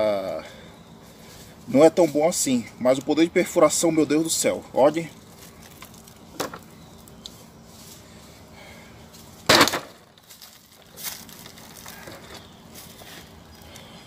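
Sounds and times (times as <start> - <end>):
machete whacking plastic bottle: 9.5 - 10.0.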